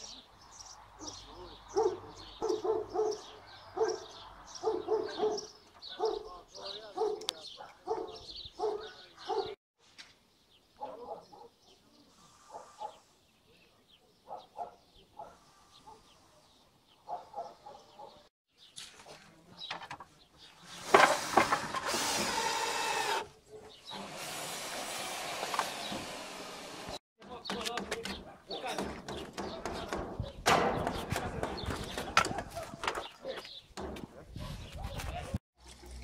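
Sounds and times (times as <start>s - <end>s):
power tool running: 21.0s - 23.3s, 24.0s - 27.0s.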